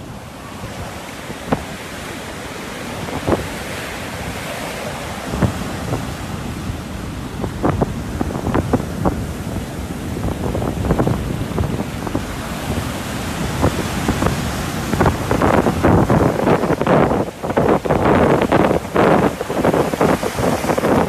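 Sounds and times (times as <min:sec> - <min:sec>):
surf breaking on beach: 0:00.0 - 0:21.0
wind noise on microphone: 0:00.0 - 0:21.0.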